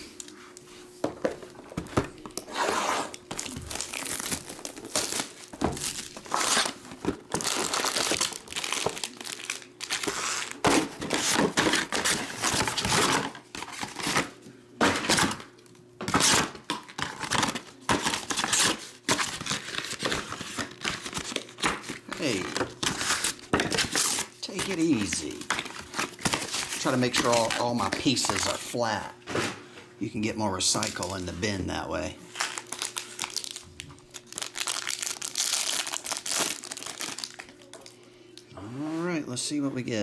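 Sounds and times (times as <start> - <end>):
cardboard box tearing: 2.5 - 6.8
foil packs crinkling: 3.1 - 15.4, 16.1 - 28.8, 30.6 - 31.6, 32.3 - 38.0.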